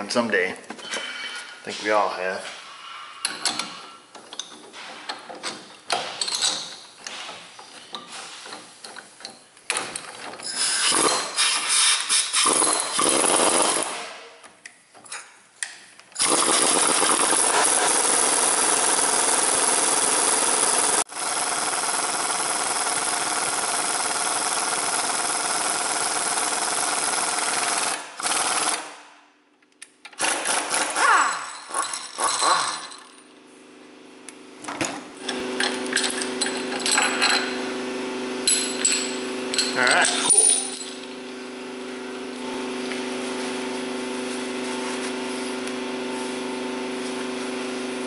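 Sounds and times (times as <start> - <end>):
pneumatic air hammer rattling: 3.2 - 14.1, 16.2 - 28.9, 30.1 - 33.1, 35.2 - 37.8, 38.4 - 41.3.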